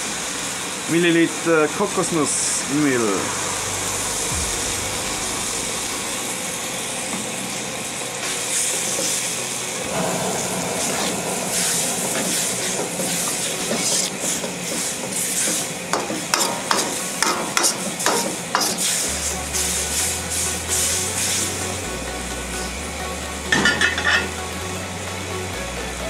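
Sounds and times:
sauce sizzling in a wok: 0:10.8 - 0:21.8.

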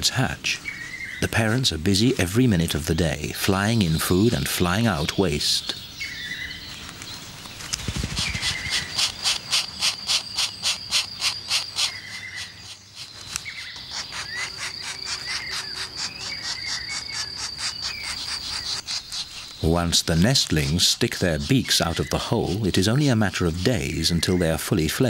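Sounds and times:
bird chirps: 0:00.0 - 0:25.0
insect chirring: 0:06.4 - 0:24.3.

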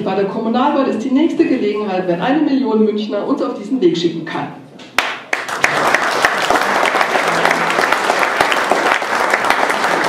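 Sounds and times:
audience applauding: 0:05.0 - 0:10.0.

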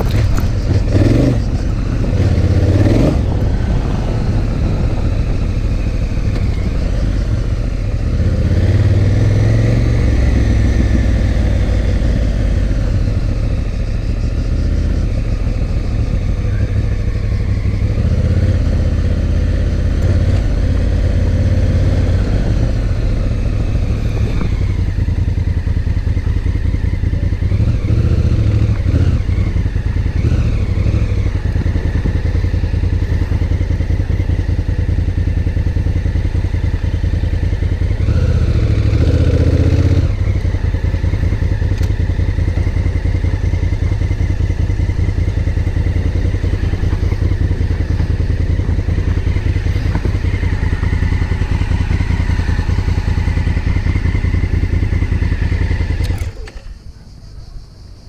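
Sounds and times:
clatter from rough surface: 0:00.0 - 0:00.9
motorcycle engine running: 0:00.0 - 0:58.0.

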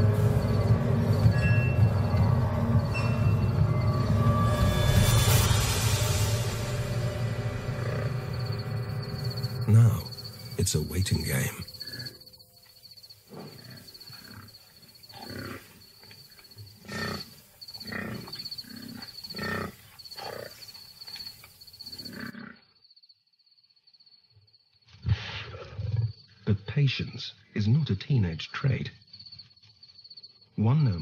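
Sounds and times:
cricket chirping: 0:00.0 - 0:31.0
lions growling and snarling: 0:13.2 - 0:20.7, 0:25.1 - 0:26.2.

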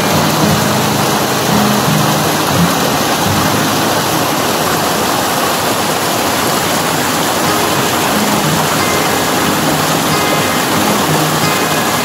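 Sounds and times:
water pouring over weir: 0:00.0 - 0:12.0.

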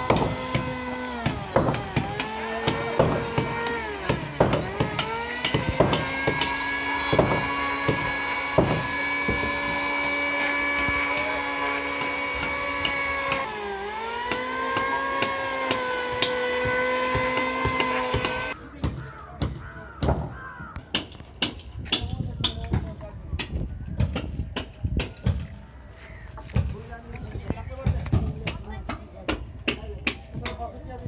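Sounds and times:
sharp wooden knocks: 0:00.0 - 0:09.8, 0:14.2 - 0:22.8
power tool motor whining: 0:00.0 - 0:18.6.

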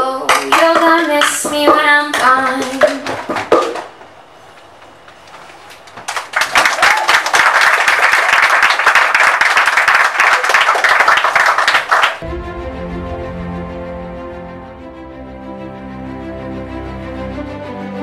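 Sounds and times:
audience applause: 0:02.4 - 0:12.2.

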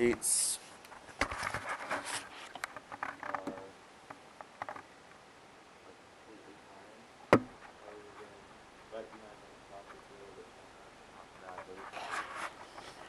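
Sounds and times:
faint clicks and rustling: 0:00.0 - 0:05.2, 0:07.5 - 0:13.0
sharp knock: 0:07.3 - 0:07.6.

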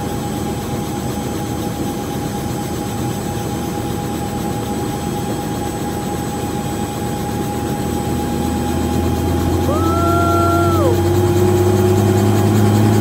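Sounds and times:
helicopter engine and rotor hum: 0:00.0 - 0:13.0
high whine: 0:08.8 - 0:11.6.

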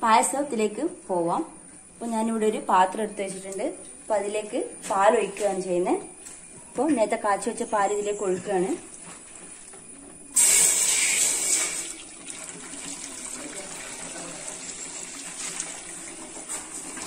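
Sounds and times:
milk pouring into steel vessel: 0:10.4 - 0:17.0.

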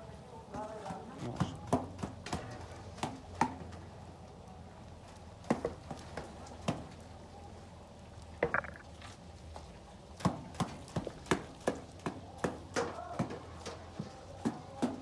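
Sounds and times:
sharp knocks: 0:08.4 - 0:08.8.

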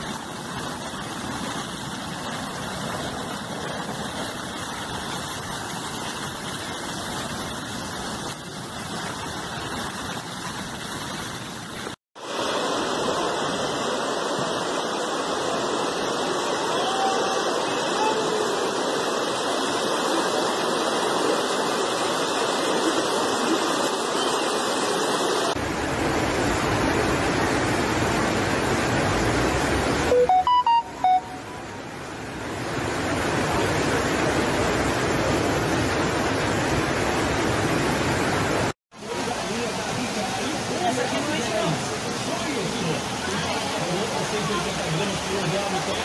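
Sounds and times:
floodwater rushing: 0:00.0 - 0:46.0
loud beeps: 0:30.1 - 0:31.5.

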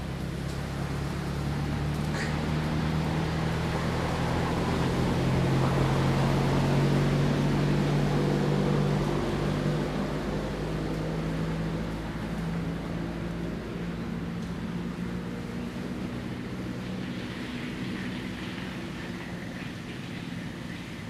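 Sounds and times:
low engine hum: 0:00.0 - 0:21.0.

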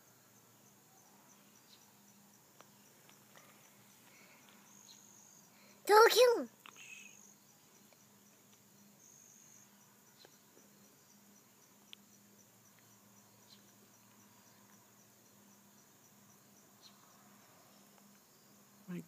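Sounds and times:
insects chirping: 0:00.0 - 0:19.0
faint ticks: 0:02.5 - 0:05.0, 0:06.6 - 0:07.2, 0:07.8 - 0:08.7, 0:10.1 - 0:10.7, 0:11.7 - 0:14.9.

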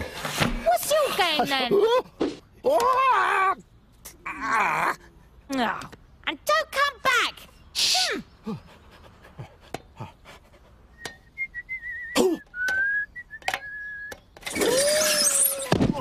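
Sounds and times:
person whistling high tone: 0:11.0 - 0:14.2.

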